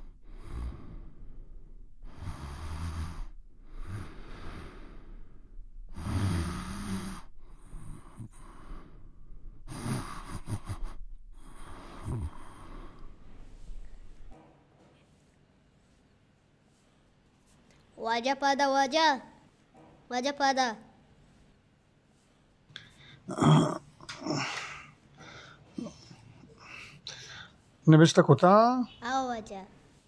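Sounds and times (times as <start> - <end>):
man snoring: 0.0 - 1.3, 2.0 - 5.2, 5.9 - 9.0, 9.6 - 13.2, 23.2 - 24.8.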